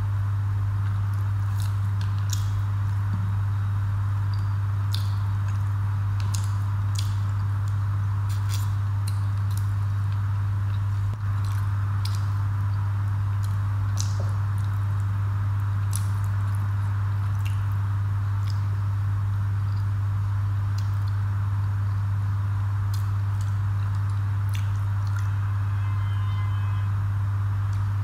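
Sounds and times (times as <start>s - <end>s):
steady low hum: 0.0s - 28.0s
wet chewing: 0.8s - 3.0s, 4.3s - 18.8s, 22.9s - 25.3s
food squished by hand: 0.9s - 2.6s, 4.3s - 12.5s, 13.4s - 18.9s, 22.9s - 25.3s.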